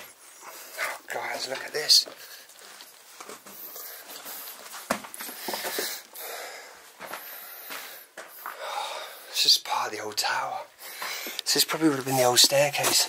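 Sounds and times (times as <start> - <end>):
person breathing heavily wheezing: 5.2 - 9.4, 10.8 - 11.4.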